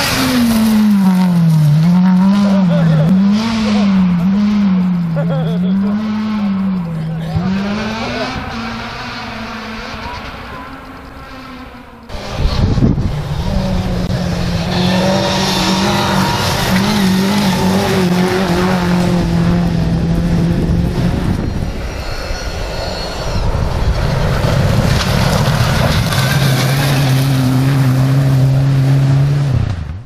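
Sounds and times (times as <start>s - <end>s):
tyres on gravel: 0.0s - 3.8s, 14.6s - 19.0s, 21.3s - 28.6s
rally car engine at high revs: 0.0s - 30.0s
turbocharged car engine approaching: 0.0s - 30.0s.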